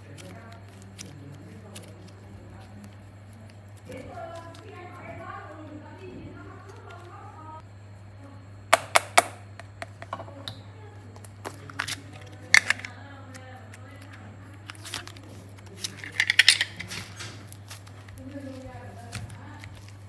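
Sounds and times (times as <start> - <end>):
modelling clay squished in hand: 0.0 - 5.8, 8.8 - 20.0
low steady hum: 0.0 - 20.0
plastic moulds clicking: 11.2 - 20.0.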